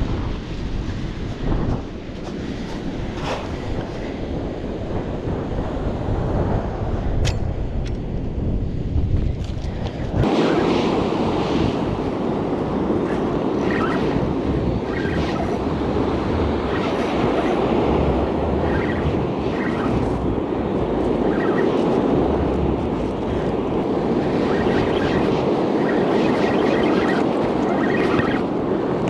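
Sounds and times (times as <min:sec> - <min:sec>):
wind noise on microphone: 0:00.0 - 0:29.0
surf on a stony beach: 0:10.2 - 0:29.0.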